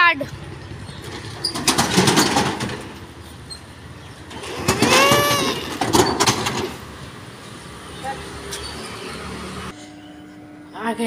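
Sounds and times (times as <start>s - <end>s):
metal roller shutter rattling: 1.0s - 3.1s, 4.2s - 6.8s
shutter slats squealing: 4.3s - 6.4s.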